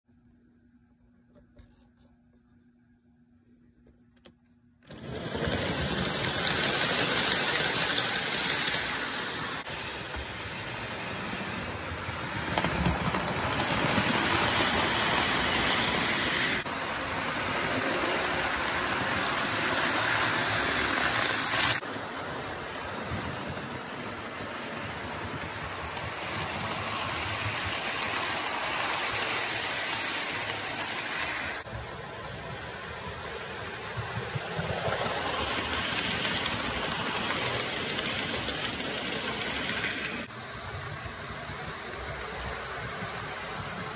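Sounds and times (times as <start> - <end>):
model train whirring on rails: 4.8 - 43.9.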